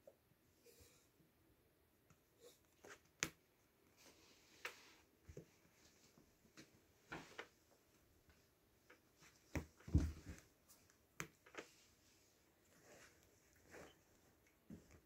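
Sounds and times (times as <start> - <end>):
kittens rustling on fabric bed: 3.8 - 15.0.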